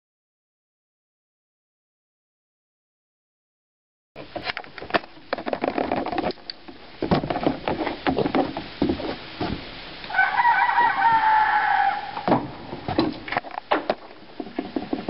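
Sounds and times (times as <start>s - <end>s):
rooster crowing: 10.1s - 12.3s.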